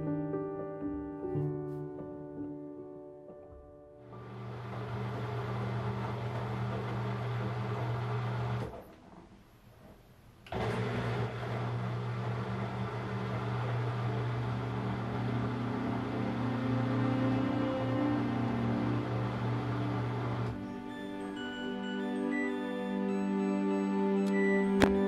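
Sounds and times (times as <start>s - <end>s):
washing machine running: 4.1s - 9.2s, 10.5s - 20.8s
faint musical tones: 15.5s - 25.0s.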